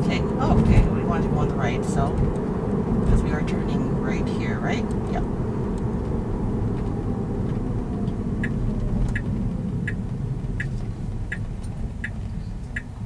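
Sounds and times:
tyre and road rumble: 0.0s - 13.0s
turn-signal indicator ticking: 8.0s - 13.0s.

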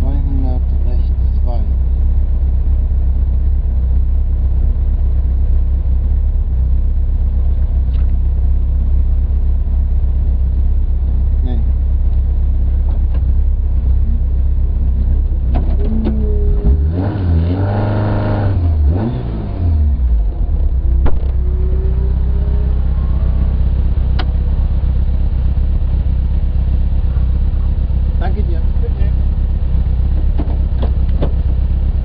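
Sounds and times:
rally car engine revving: 11.2s - 32.0s.

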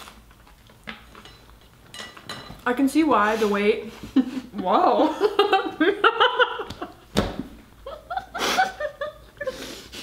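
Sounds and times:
women laughing: 4.1s - 7.1s, 7.8s - 9.8s.

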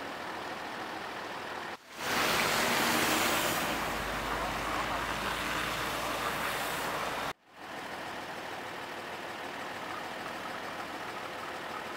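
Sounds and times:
vehicle engine hum: 0.0s - 11.9s
outdoor rushing noise: 1.8s - 7.4s.

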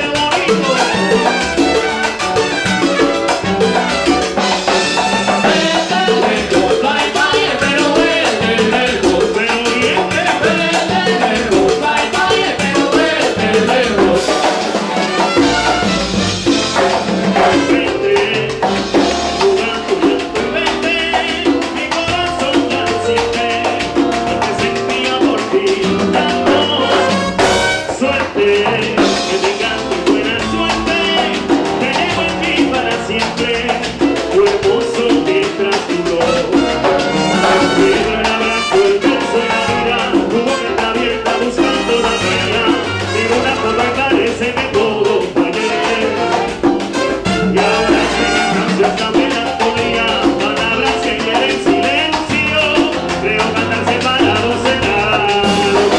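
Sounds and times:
horn lines: 0.0s - 21.0s, 25.5s - 33.1s, 34.4s - 44.6s, 45.4s - 50.1s
congas and timbales: 0.0s - 55.9s
salsa band playing: 0.0s - 55.9s
singers singing into microphones: 5.5s - 14.6s, 37.5s - 51.8s.

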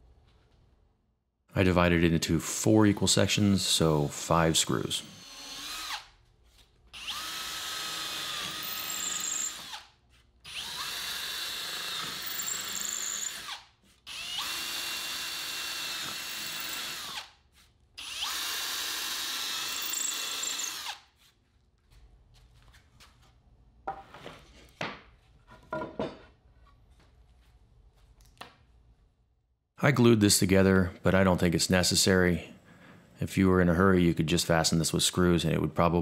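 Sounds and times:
power drill boring into wood: 5.0s - 6.1s, 7.0s - 9.9s, 10.5s - 17.3s, 18.0s - 21.1s.

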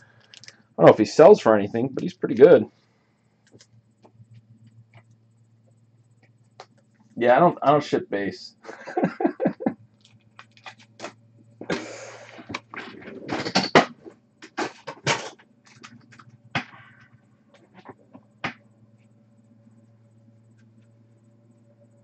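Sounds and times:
faint low hum: 0.0s - 22.0s
cards and packaging handled: 10.4s - 11.1s.

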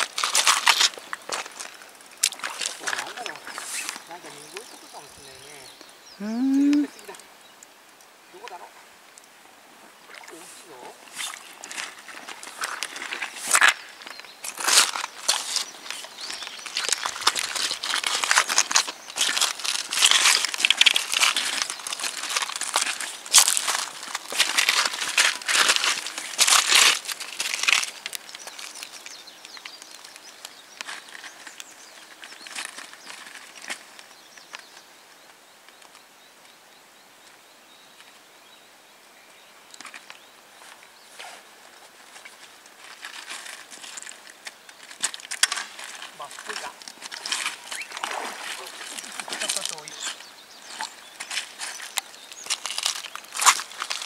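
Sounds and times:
footsteps crunching on gravel: 0.0s - 5.8s, 10.3s - 34.1s, 39.8s - 54.0s
faint steady hiss: 0.0s - 54.0s
faint bird calls: 3.0s - 7.6s, 8.2s - 9.0s, 46.1s - 52.6s.

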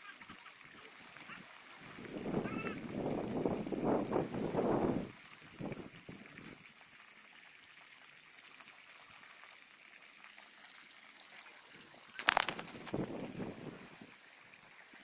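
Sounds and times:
hose water trickling over soil: 0.0s - 15.0s.

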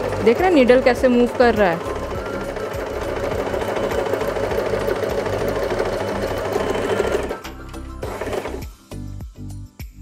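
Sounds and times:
electric sewing machine running: 0.0s - 8.7s.

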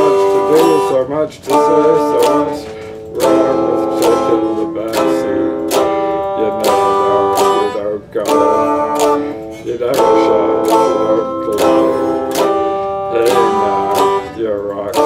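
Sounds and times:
electric guitar strumming chords: 0.0s - 15.0s.

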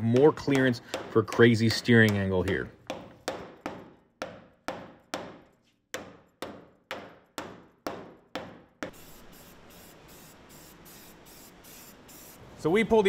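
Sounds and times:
hammer striking sheet steel: 0.0s - 9.0s
steady hiss: 8.9s - 12.8s.

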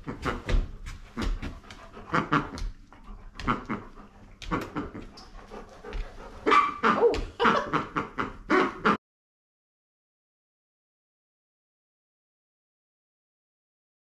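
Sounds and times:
dog whining and yipping: 6.4s - 7.1s.

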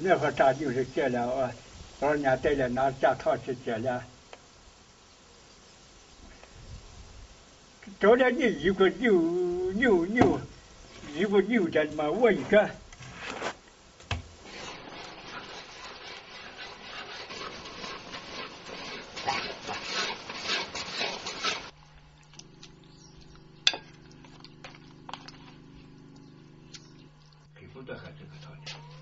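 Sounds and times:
wok hissing and scraping: 10.4s - 21.8s
low steady hum: 17.6s - 29.0s.

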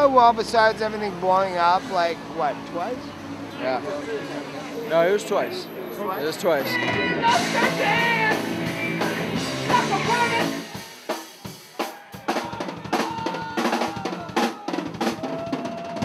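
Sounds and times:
punk rock band playing live: 6.6s - 16.0s.

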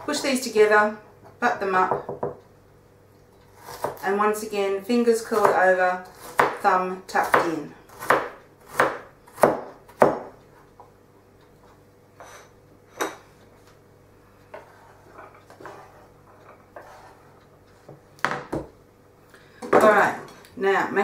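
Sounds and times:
knife scraping board: 3.5s - 4.0s, 14.5s - 17.9s
knife chopping on wooden board: 3.6s - 4.0s, 5.4s - 6.6s, 7.2s - 10.4s.

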